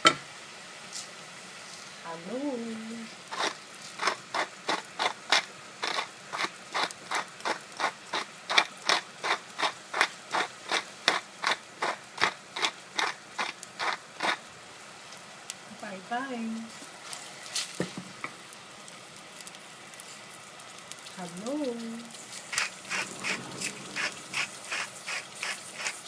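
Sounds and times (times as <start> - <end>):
pepper mill grinding: 3.3 - 14.5, 20.8 - 26.0.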